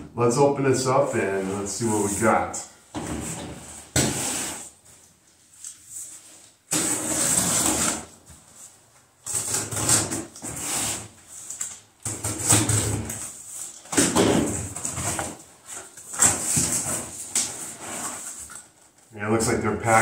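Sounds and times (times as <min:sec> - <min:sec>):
packing tape tearing: 0:09.2 - 0:14.2.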